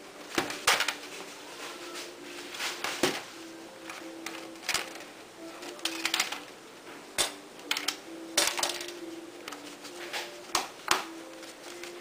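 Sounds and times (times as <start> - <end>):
plastic parts clicking and knocking: 0.3 - 1.0, 3.9 - 6.5, 7.2 - 9.6.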